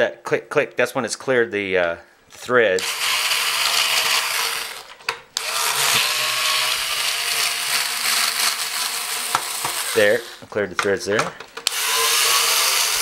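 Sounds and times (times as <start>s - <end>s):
drill-driver running: 2.8s - 10.4s, 11.6s - 13.0s.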